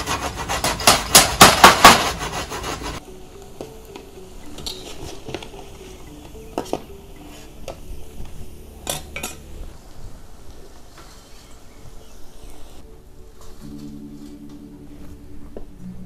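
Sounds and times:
metal utensils scraping a wok: 0.0s - 3.0s, 4.6s - 7.8s.

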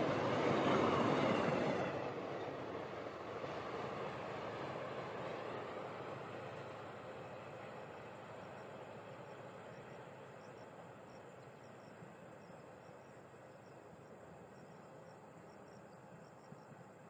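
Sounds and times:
faint train rumble: 0.0s - 17.0s
insects chirping: 0.0s - 17.0s.

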